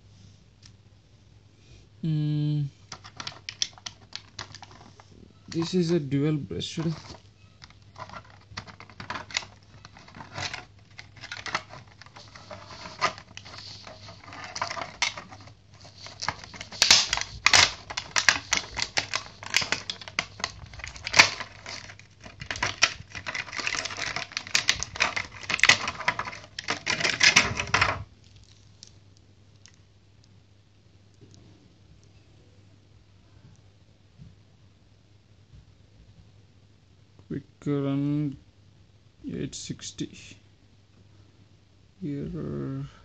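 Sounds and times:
plastic packaging crackling: 0:02.9 - 0:06.0, 0:06.6 - 0:29.8.

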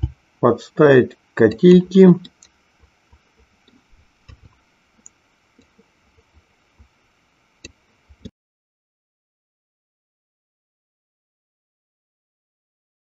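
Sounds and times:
mouse and keyboard clicks: 0:03.7 - 0:05.7.

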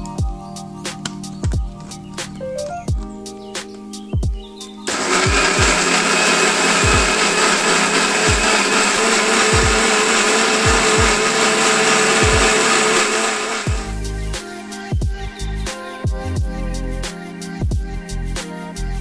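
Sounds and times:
blender motor whirring: 0:04.9 - 0:14.0.

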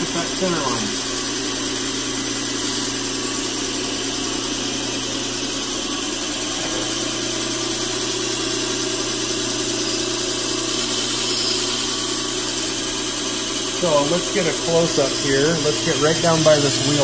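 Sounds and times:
belt grinder grinding steel: 0:00.4 - 0:12.8, 0:13.8 - 0:17.0.

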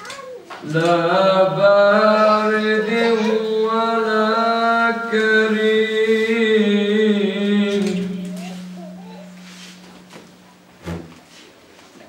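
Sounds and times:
man chanting recitation: 0:00.6 - 0:08.7.

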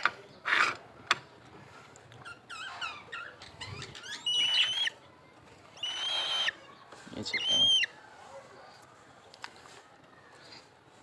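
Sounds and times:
birds chirping: 0:02.2 - 0:08.8
shrill squealing bird calls: 0:02.3 - 0:05.0, 0:05.8 - 0:06.6, 0:07.3 - 0:07.9.

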